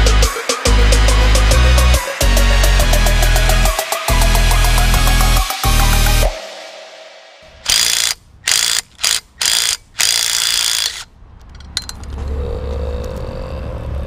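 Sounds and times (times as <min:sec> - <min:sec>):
impact wrench hammering: 0:07.7 - 0:11.1.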